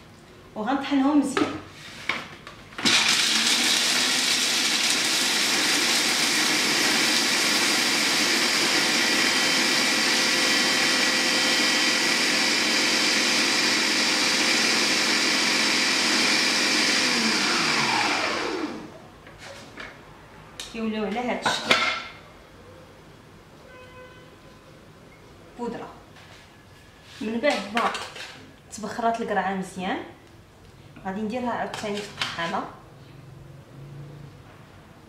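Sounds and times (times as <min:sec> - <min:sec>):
food processor motor grinding: 0:02.8 - 0:18.9.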